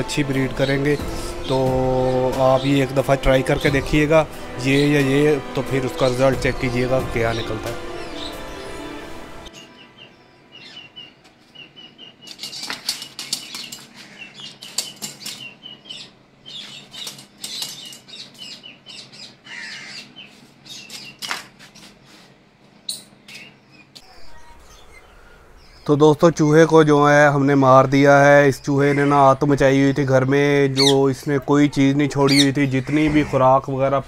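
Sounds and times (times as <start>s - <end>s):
rat chirping: 30.7s - 31.1s, 32.1s - 33.1s.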